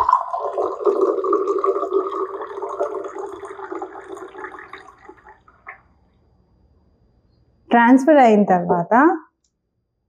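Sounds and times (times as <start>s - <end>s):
water pouring between glasses: 0.0s - 5.8s.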